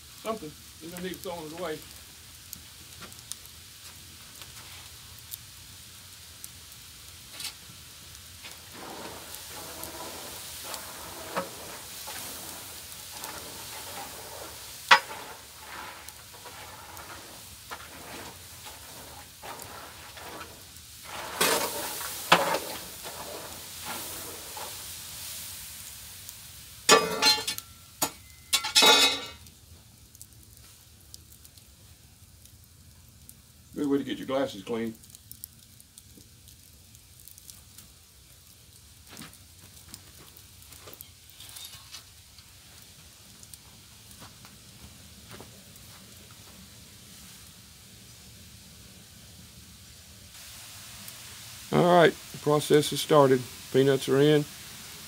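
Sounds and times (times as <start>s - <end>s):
water steaming and sizzling: 0.0s - 55.0s
loud clatters and scrapes: 8.5s - 24.8s, 40.9s - 42.1s.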